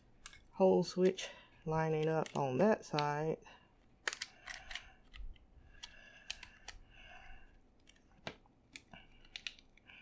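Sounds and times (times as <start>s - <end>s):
sharp small plastic clicks: 4.0s - 6.8s.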